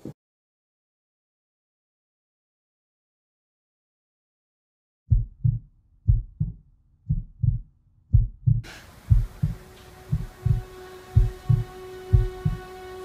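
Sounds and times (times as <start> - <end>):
heartbeat thumps: 5.1 - 12.6
high-pitched drone with hiss: 9.5 - 13.0.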